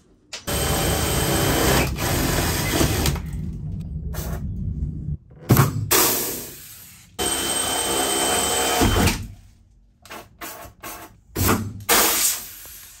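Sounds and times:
cordless drill boring sheet metal: 0:07.2 - 0:09.1.

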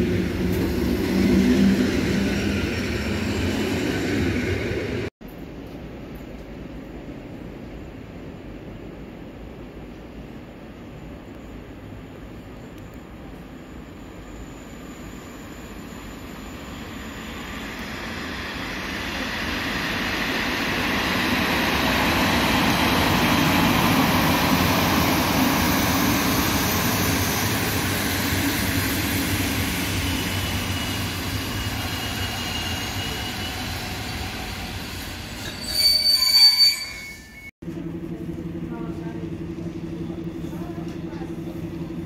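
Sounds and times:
loud high squeal: 0:29.3 - 0:37.5
thin wheel squeal: 0:30.1 - 0:37.5.

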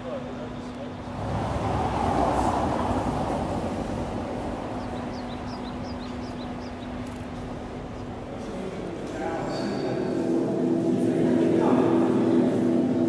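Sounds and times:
steady traffic hum: 0:00.0 - 0:13.0
vehicle passing: 0:01.0 - 0:07.1.

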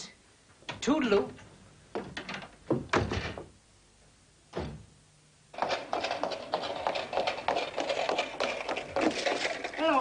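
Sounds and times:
footsteps running on cobblestones: 0:05.6 - 0:10.0.

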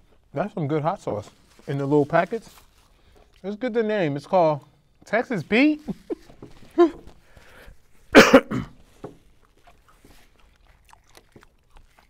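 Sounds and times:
man coughing: 0:08.1 - 0:08.8.

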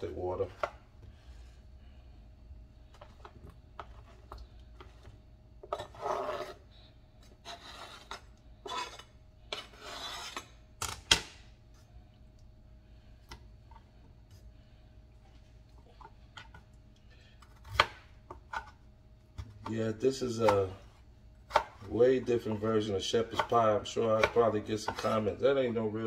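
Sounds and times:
knife scraping on cutting board: 0:05.6 - 0:10.6, 0:22.5 - 0:25.3.

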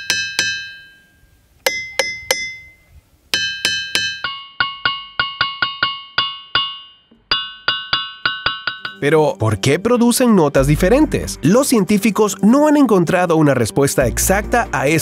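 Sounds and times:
hammer striking ringing rock: 0:00.0 - 0:09.1.

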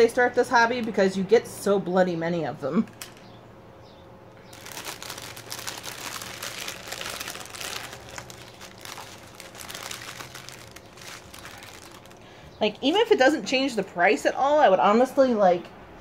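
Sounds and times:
plastic packaging crinkling: 0:04.4 - 0:13.0.

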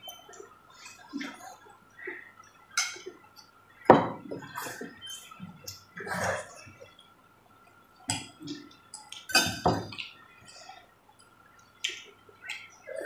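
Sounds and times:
children slurping noodles: 0:06.0 - 0:06.9.

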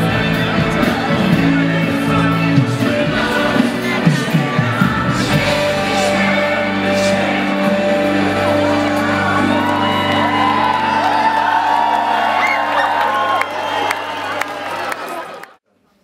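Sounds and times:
music with singing: 0:00.0 - 0:12.3
crowd shouting and whooping: 0:04.0 - 0:15.6.

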